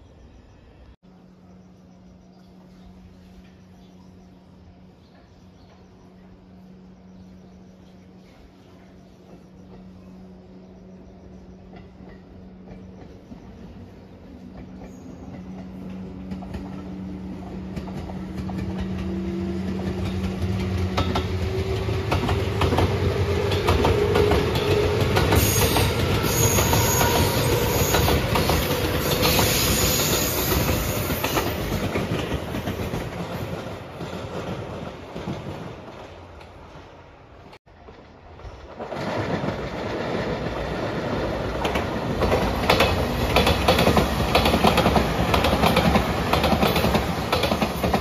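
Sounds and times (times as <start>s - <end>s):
electric train passing: 0.0s - 48.0s
wheels clacking over rail joints: 14.4s - 48.0s.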